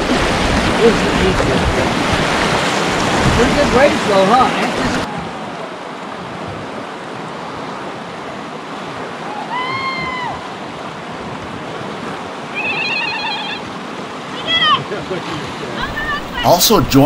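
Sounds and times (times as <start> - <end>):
river water rushing through rapids: 0.0 - 17.0
high cry: 9.4 - 10.5, 12.5 - 13.7, 15.8 - 16.5.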